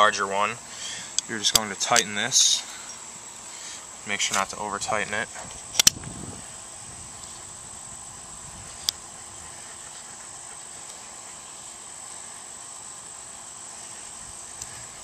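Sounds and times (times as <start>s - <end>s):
high-pitched whine: 0.0s - 15.0s
steady hiss: 0.0s - 15.0s
sharp click of gun handling: 5.8s - 6.0s.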